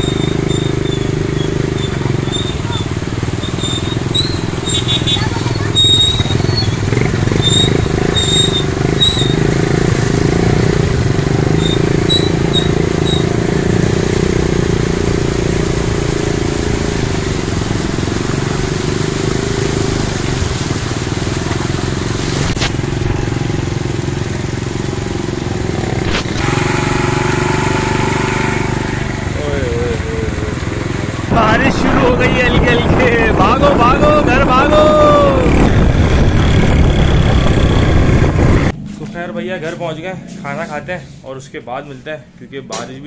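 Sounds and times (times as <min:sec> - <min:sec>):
motorcycle engine running: 0:00.0 - 0:40.8
water swishing and splashing: 0:14.2 - 0:33.2.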